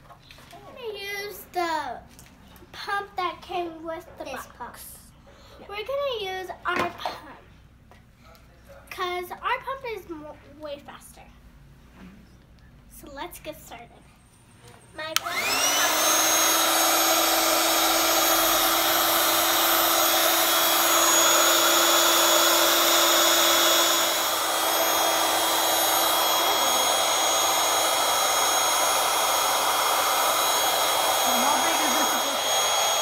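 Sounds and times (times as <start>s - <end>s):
electric air pump whining: 15.0s - 33.0s.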